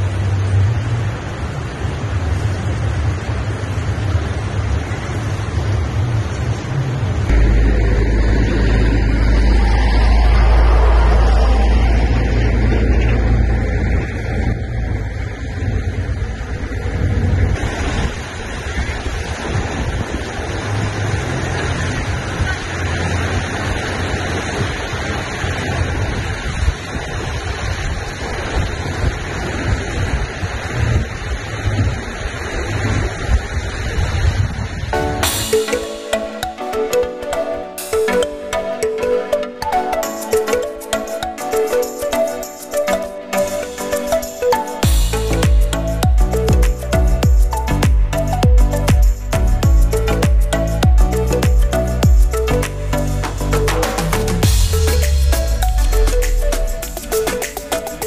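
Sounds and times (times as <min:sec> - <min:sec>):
wind buffeting microphone: 0:00.0 - 0:35.4
rocky river rushing: 0:15.9 - 0:58.0.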